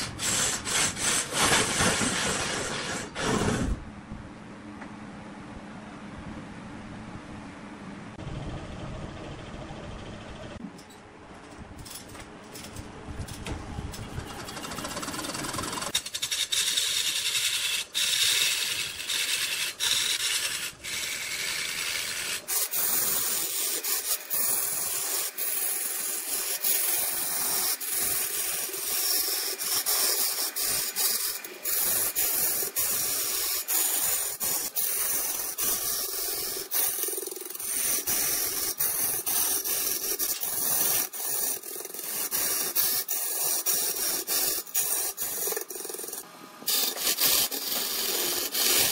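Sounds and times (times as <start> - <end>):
lathe tool scraping wood: 0.0 - 3.8, 14.3 - 48.9.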